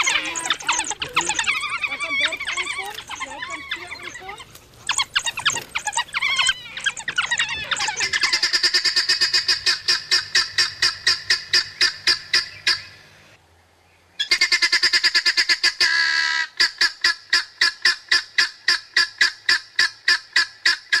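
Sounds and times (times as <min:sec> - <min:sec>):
wild dogs twittering: 0:00.0 - 0:13.1.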